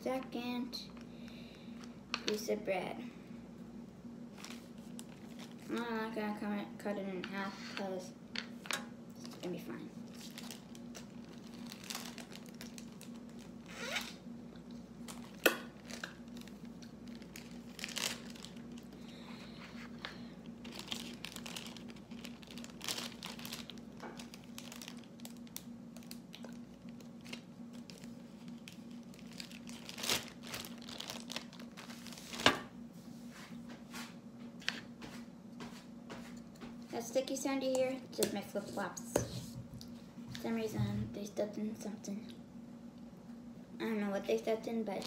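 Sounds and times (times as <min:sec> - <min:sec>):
plastic bag crinkling: 0:04.3 - 0:06.0, 0:09.2 - 0:32.7.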